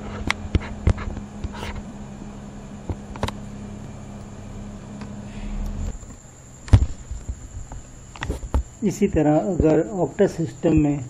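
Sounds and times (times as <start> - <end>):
low electrical hum: 0.0 - 11.0.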